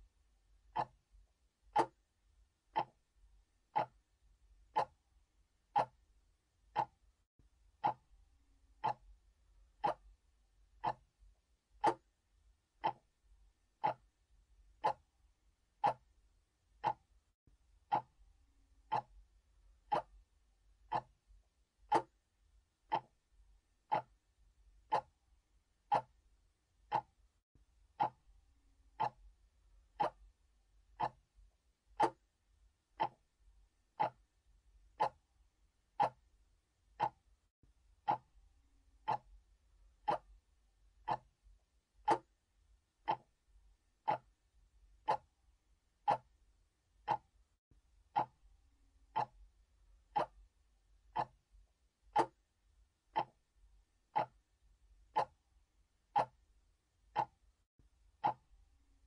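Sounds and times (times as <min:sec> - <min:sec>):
clock ticking: 0:00.7 - 0:01.0, 0:01.6 - 0:02.0, 0:02.7 - 0:03.1, 0:03.7 - 0:05.0, 0:05.6 - 0:07.0, 0:07.8 - 0:08.1, 0:08.7 - 0:10.2, 0:10.8 - 0:11.1, 0:11.7 - 0:12.2, 0:12.8 - 0:13.2, 0:13.8 - 0:15.1, 0:15.7 - 0:17.2, 0:17.8 - 0:18.2, 0:18.8 - 0:19.2, 0:19.8 - 0:20.3, 0:20.9 - 0:21.2, 0:21.8 - 0:22.2, 0:22.9 - 0:23.2, 0:23.8 - 0:24.2, 0:24.8 - 0:25.2, 0:25.8 - 0:26.2, 0:26.8 - 0:27.2, 0:27.9 - 0:28.3, 0:28.9 - 0:31.3, 0:32.0 - 0:32.3, 0:33.0 - 0:33.3, 0:33.9 - 0:34.3, 0:34.9 - 0:35.3, 0:35.9 - 0:36.3, 0:36.9 - 0:37.4, 0:38.0 - 0:38.4, 0:39.0 - 0:39.4, 0:40.0 - 0:40.4, 0:41.0 - 0:41.4, 0:42.0 - 0:42.4, 0:43.0 - 0:43.4, 0:44.0 - 0:44.4, 0:45.0 - 0:45.4, 0:46.0 - 0:46.4, 0:47.0 - 0:47.4, 0:48.1 - 0:48.4, 0:49.1 - 0:49.5, 0:50.1 - 0:50.5, 0:51.1 - 0:51.4, 0:52.1 - 0:52.4, 0:53.1 - 0:53.5, 0:54.1 - 0:54.5, 0:55.1 - 0:55.4, 0:56.1 - 0:56.5, 0:57.1 - 0:57.5, 0:58.2 - 0:58.6.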